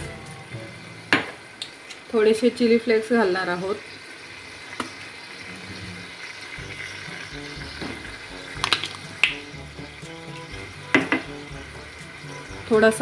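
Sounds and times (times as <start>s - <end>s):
soft background music: 0.0s - 1.1s, 6.6s - 13.0s
vegetables sizzling in a pan: 0.0s - 13.0s.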